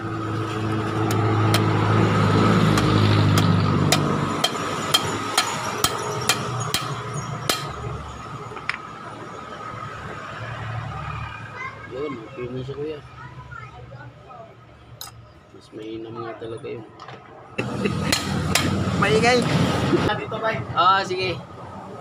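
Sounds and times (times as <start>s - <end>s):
vehicle rumbling past: 0.0s - 13.4s, 17.2s - 22.0s
hammer tapping on metal: 2.7s - 7.8s, 18.1s - 18.8s.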